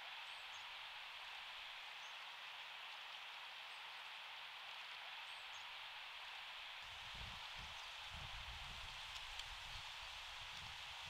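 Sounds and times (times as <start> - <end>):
outdoor background hiss: 0.0 - 11.0.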